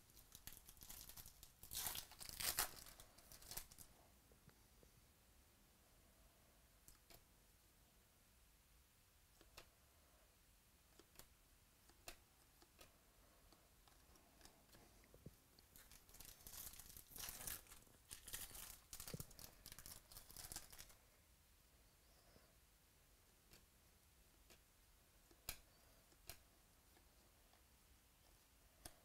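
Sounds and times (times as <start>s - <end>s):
foil wrapper tearing and crinkling: 0.2s - 3.9s, 15.8s - 21.0s.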